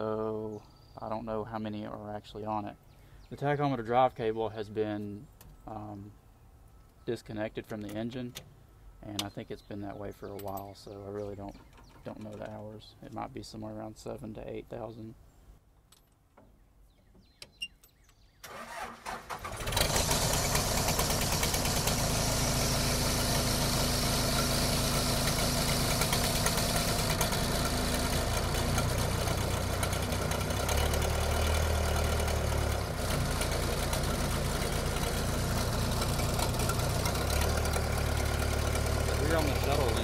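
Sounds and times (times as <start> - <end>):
starter motor cranking: 18.5 - 40.0
diesel engine idling: 18.6 - 40.0.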